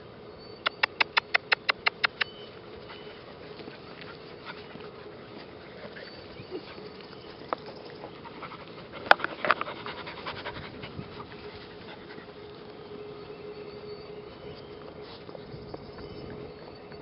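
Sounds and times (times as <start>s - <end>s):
puppies panting: 0.9s - 13.0s
puppies scuffling in grass: 1.9s - 17.0s.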